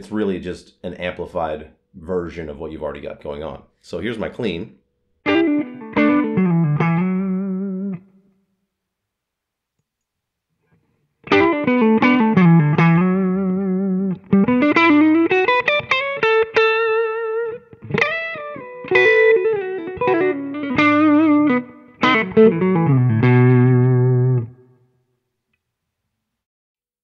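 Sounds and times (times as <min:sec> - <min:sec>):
clean electric guitar lead: 0:05.2 - 0:08.1, 0:11.2 - 0:24.8.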